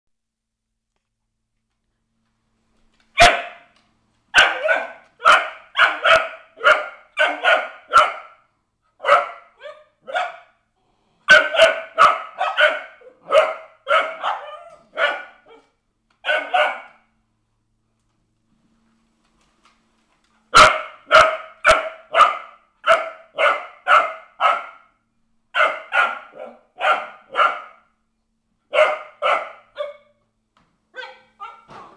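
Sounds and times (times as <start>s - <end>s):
dogs barking sharply: 3.2s - 10.6s, 11.3s - 17.1s, 20.5s - 28.0s, 28.7s - 30.2s.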